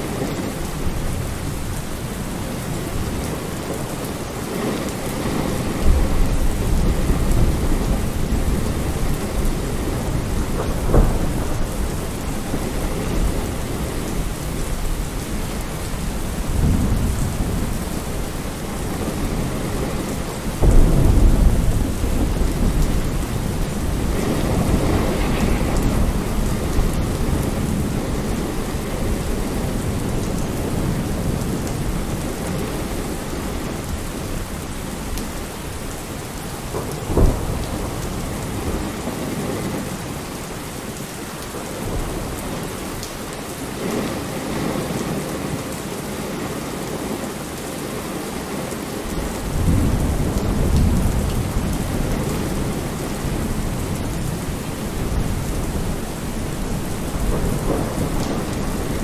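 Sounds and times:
steady rain: 0.0 - 59.0
thunder rolling: 2.6 - 35.9, 36.6 - 40.0, 49.1 - 59.0.

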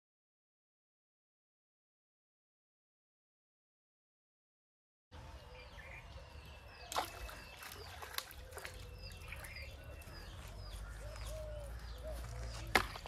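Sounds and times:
small birds chirping: 5.2 - 13.0.

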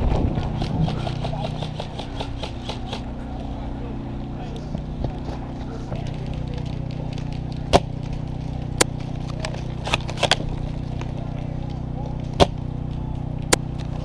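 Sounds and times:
low hum: 0.0 - 14.0
airsoft gun shots: 0.5 - 3.0.

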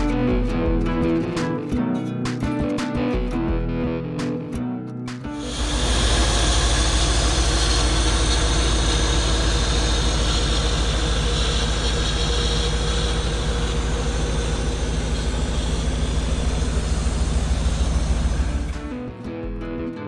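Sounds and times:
car engine idling: 5.4 - 19.2.

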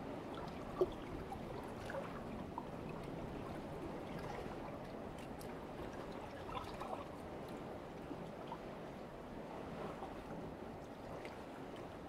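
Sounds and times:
small water splashes: 0.3 - 7.2.

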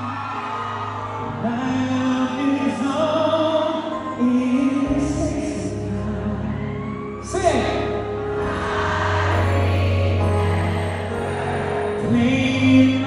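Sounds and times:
man singing live: 1.4 - 7.4, 9.3 - 13.0.

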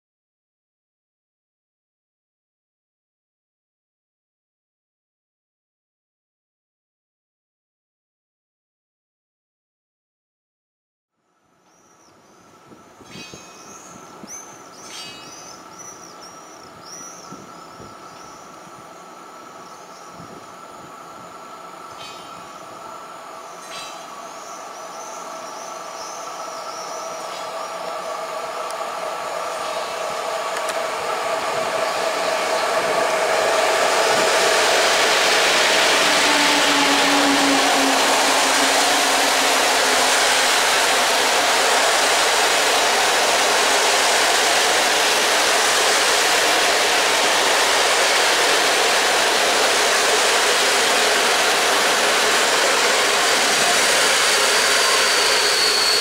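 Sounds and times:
electric locomotive whine: 11.2 - 56.0
locomotive hum: 11.7 - 56.0
train wheels rushing on rails: 11.7 - 56.0.

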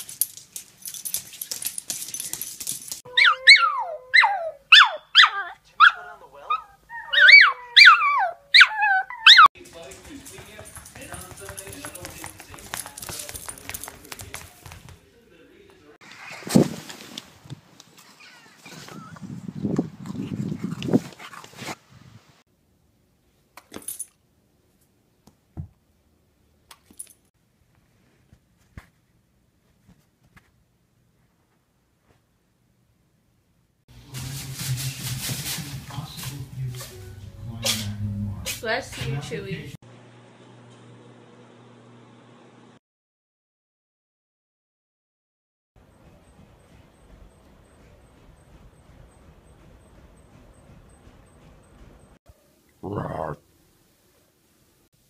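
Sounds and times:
clicking and rustling: 0.0 - 3.0
husky howling on video: 3.1 - 9.5
small dog howling: 3.1 - 9.5
dog scuffling on leaves: 34.1 - 37.0.

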